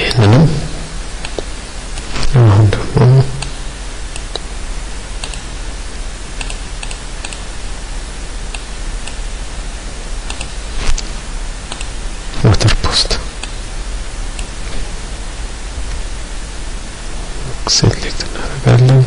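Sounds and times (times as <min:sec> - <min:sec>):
low mains hum: 0:00.0 - 0:19.0
microphone hiss: 0:00.0 - 0:19.0
computer mouse clicks: 0:04.1 - 0:04.5, 0:05.2 - 0:05.4, 0:06.4 - 0:07.4, 0:08.5 - 0:09.2, 0:10.2 - 0:11.1, 0:11.7 - 0:11.9.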